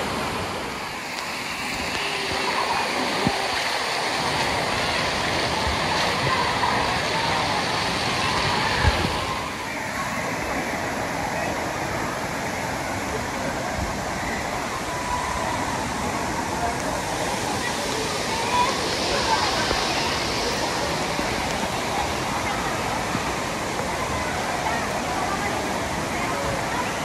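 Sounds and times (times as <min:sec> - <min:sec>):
water splashing into pool: 0:00.0 - 0:09.7
crowd voices: 0:00.0 - 0:27.0.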